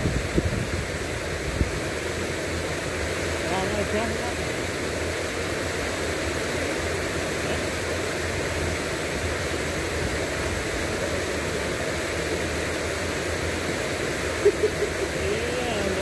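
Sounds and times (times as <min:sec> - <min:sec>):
river water rushing over weir: 0:00.0 - 0:16.0.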